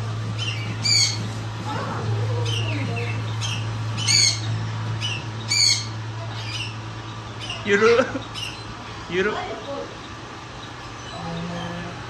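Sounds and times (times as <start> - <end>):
steady low hum: 0.0 - 12.0
bird squawking shrilly: 3.4 - 6.8.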